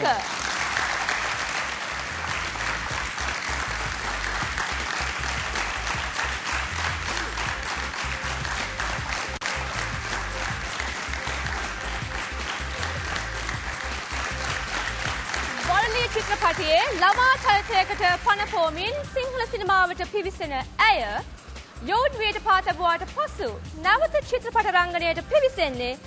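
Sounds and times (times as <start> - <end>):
audience clapping: 0.0 - 18.8
music: 0.0 - 26.0.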